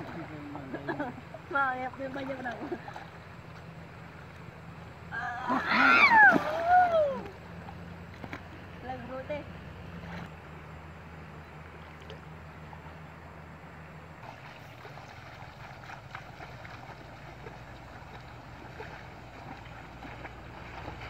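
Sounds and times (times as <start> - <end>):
splashes from people wading: 0.0 - 9.0, 14.2 - 21.0
shallow river water flowing: 0.0 - 21.0
wind: 0.0 - 21.0.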